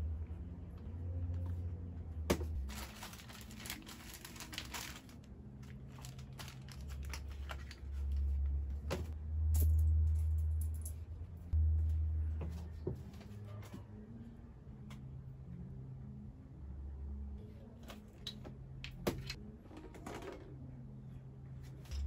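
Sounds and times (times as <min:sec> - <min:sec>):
packaging rustling and crinkling: 0:02.5 - 0:08.2.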